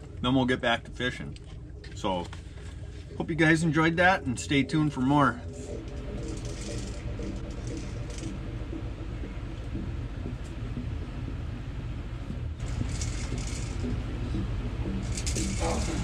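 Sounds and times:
low rumble: 0.0s - 16.0s.

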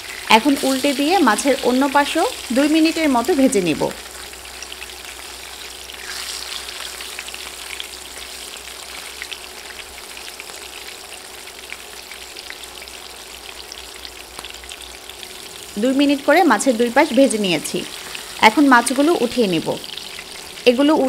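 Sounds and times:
oil crackling and popping: 0.0s - 15.8s
fish sizzling in hot oil: 0.0s - 21.0s.

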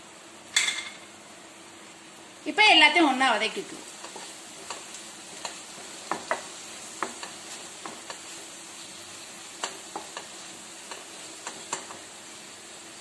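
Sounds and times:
masala sizzling in a pan: 0.0s - 13.0s
spatula tapping and scraping pan: 4.0s - 8.5s, 9.4s - 12.1s.

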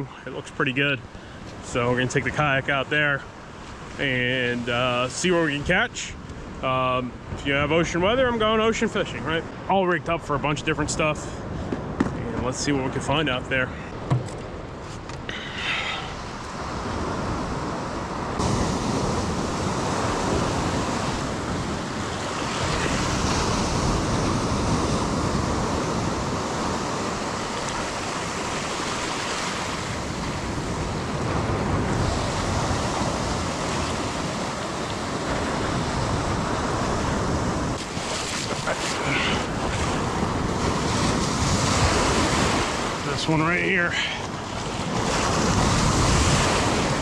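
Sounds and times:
ocean surf breaking: 0.0s - 47.0s
wind on microphone: 14.0s - 43.1s, 44.3s - 47.0s.

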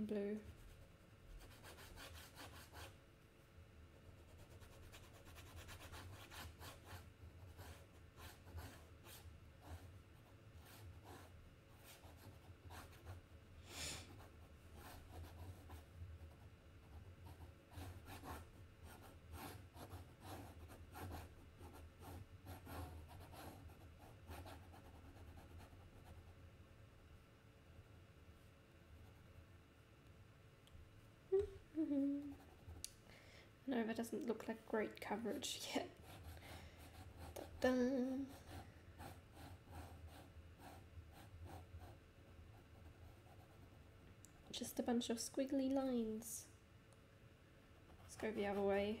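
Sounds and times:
person humming: 31.3s - 32.5s.

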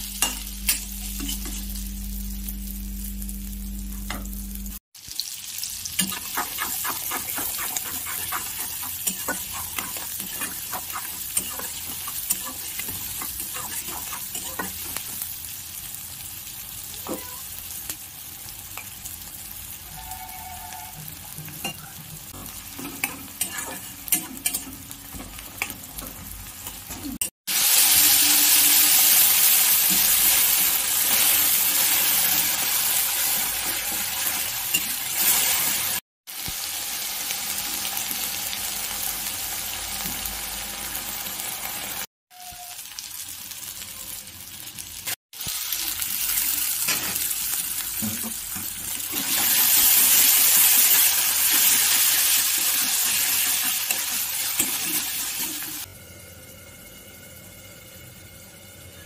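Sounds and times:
onions sizzling in hot oil: 0.0s - 59.0s
metal spatula scraping pan: 6.0s - 14.9s, 19.9s - 27.0s.

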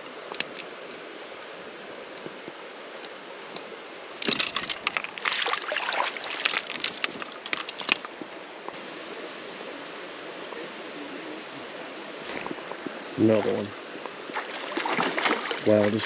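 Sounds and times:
creek flowing: 0.0s - 16.0s
sharp crackling and clicking: 6.5s - 8.2s.

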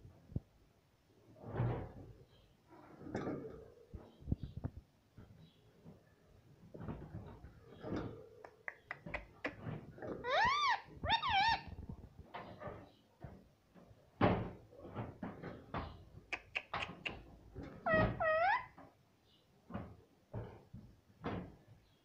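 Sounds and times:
parrot calls: 10.2s - 11.7s, 17.8s - 18.8s.

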